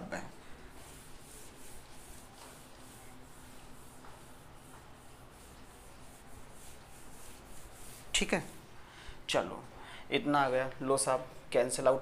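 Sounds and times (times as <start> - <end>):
marker writing on whiteboard: 0.7 - 8.6.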